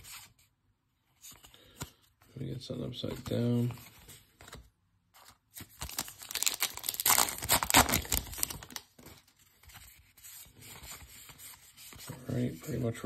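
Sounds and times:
wrapper crinkling and tearing: 5.6 - 9.1.

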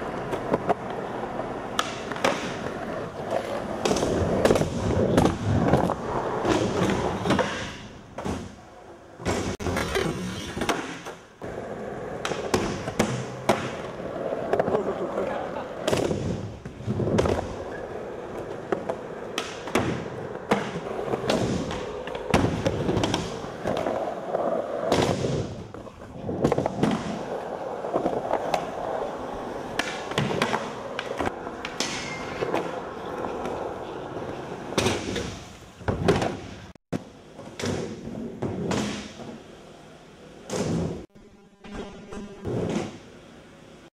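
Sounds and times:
skateboard wheels rolling on concrete: 0.0 - 41.1
skateboard clacks and thuds: 1.7 - 8.6, 18.3 - 39.4.

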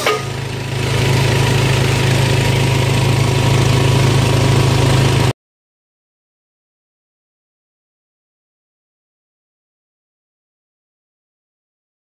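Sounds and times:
small engine running: 0.0 - 5.3.

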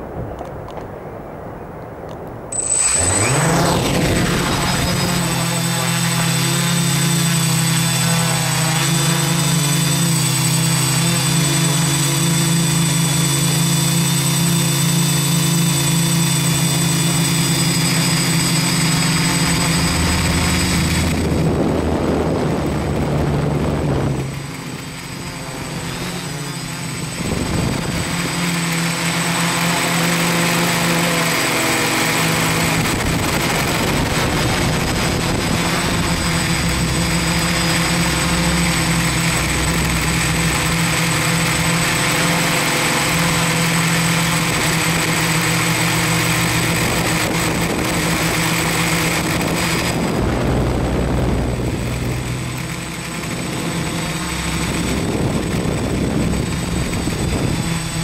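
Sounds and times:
quadcopter propellers whirring: 0.0 - 58.0.

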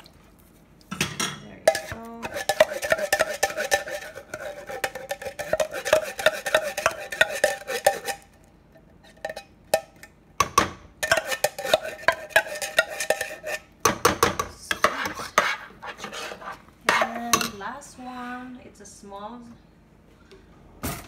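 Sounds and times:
metal utensil scraping a can: 1.7 - 8.3, 11.0 - 13.7, 14.8 - 17.3.

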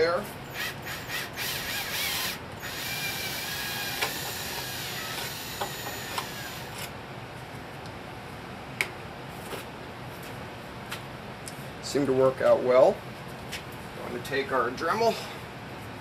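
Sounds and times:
electric drill grinding into metal: 0.6 - 6.9.

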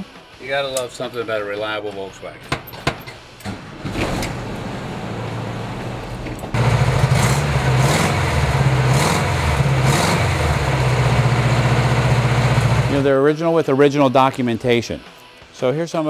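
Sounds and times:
engine starting and running: 3.4 - 13.1.

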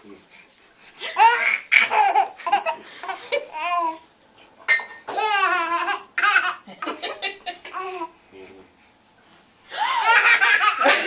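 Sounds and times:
baby laughing: 1.0 - 4.0, 4.7 - 8.1, 10.0 - 11.0
women laughing: 6.6 - 7.8, 9.7 - 11.0.

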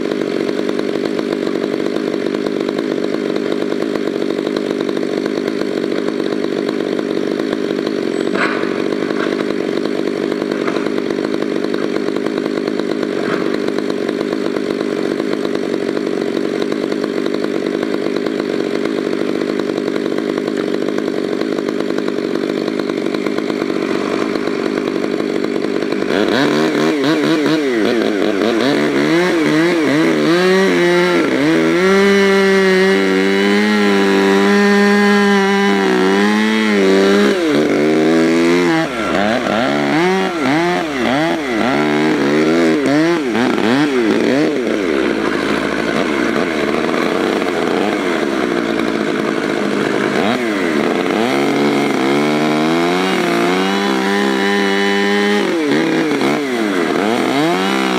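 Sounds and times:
chainsaw cutting tree trunk: 0.0 - 57.9.

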